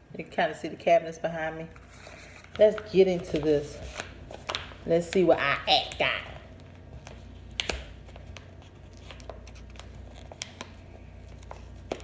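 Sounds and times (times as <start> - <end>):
low steady hum: 0.0 - 12.0
paper crinkling: 5.8 - 12.0.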